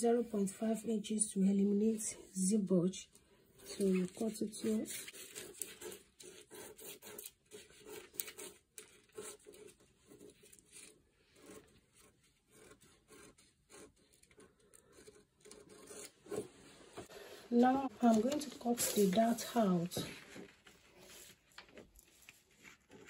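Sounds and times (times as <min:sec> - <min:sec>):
paper scraping: 0:03.6 - 0:23.0
scissors snipping paper: 0:03.7 - 0:11.6.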